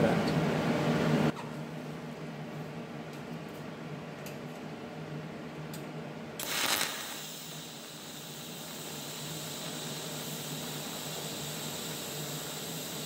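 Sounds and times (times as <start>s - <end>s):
thin high whine: 6.4s - 13.0s
welding arc crackling and hissing: 6.4s - 13.0s.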